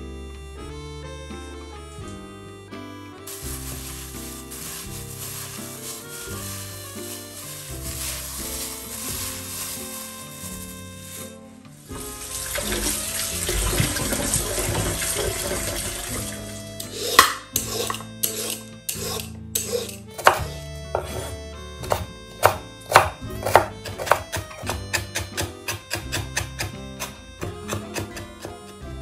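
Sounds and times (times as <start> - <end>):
background music: 0.0 - 29.0
peeler scraping carrot: 3.3 - 11.3, 16.8 - 22.0, 22.9 - 28.8
knife chopping on bamboo board: 16.9 - 18.0, 20.2 - 28.7.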